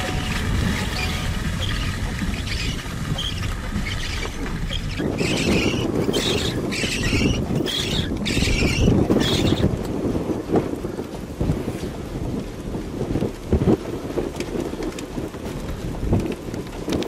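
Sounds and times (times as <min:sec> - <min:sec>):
storm wind buffeting microphone: 0:00.0 - 0:17.0.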